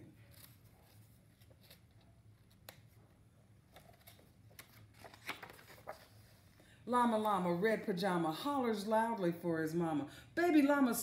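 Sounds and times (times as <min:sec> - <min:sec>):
book pages turning: 0:00.1 - 0:06.6.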